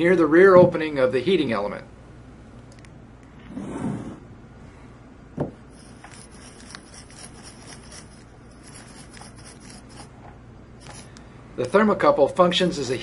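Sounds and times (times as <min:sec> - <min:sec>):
soldering iron scraping wire wool: 0:05.7 - 0:10.2, 0:10.8 - 0:11.2.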